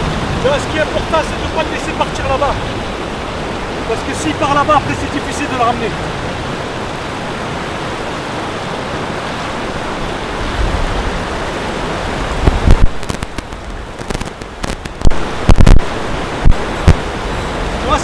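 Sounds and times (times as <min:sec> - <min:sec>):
loud low thumps: 0:12.4 - 0:17.2.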